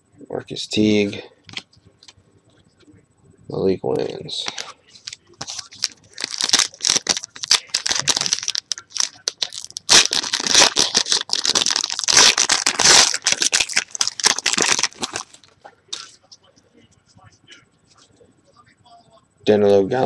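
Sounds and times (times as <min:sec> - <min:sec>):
foil wrapper tearing and crinkling: 0:05.4 - 0:15.5.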